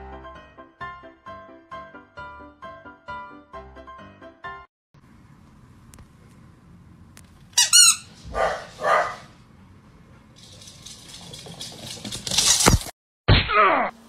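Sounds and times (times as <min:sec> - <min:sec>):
rubber squeaky toy squeaking: 0:07.6 - 0:08.2.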